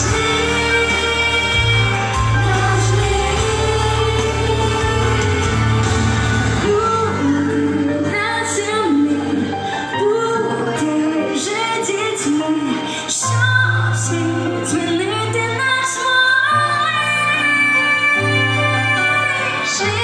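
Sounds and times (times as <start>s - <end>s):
backing track with deep bass: 0.0s - 11.9s
women singing pop song: 0.0s - 20.0s.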